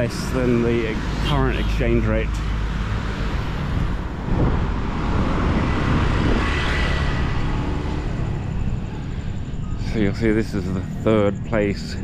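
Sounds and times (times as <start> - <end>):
vehicle passing close by: 0.0 - 10.6
road traffic: 0.0 - 12.0.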